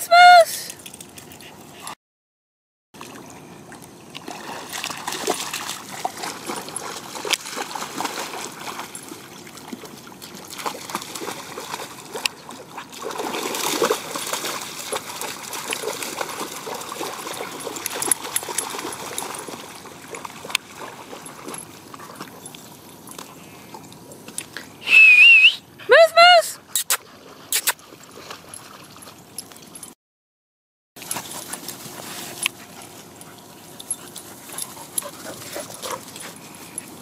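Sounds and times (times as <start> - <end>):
dogs splashing in water: 3.0 - 24.4, 26.8 - 29.8
water sloshing and trickling: 3.0 - 24.8, 27.0 - 30.0, 31.0 - 37.0.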